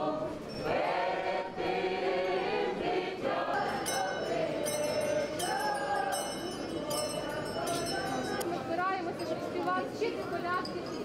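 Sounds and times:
crowd singing a carol in a hall: 0.0 - 8.7
metallic jingling: 3.6 - 8.6.

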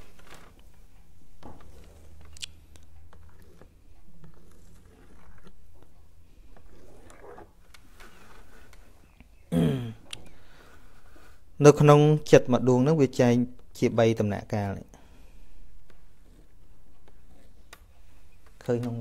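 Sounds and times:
stylus scratching on drawing board: 3.1 - 9.1, 15.8 - 18.4.

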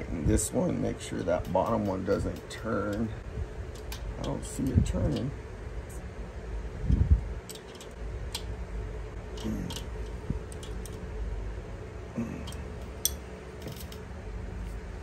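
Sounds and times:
wrench clicking on metal: 1.0 - 3.1.

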